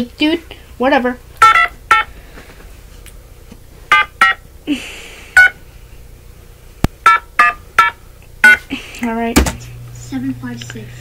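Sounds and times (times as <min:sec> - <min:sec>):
touch-tone keypad beeps: 0:01.4 - 0:02.1, 0:07.1 - 0:08.6.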